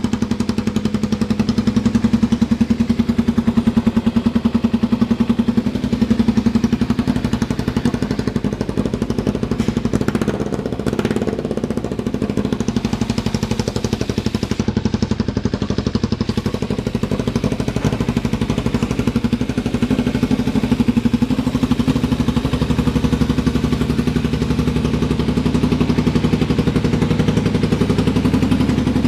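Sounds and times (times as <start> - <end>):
motorcycle engine idling: 0.0 - 29.0.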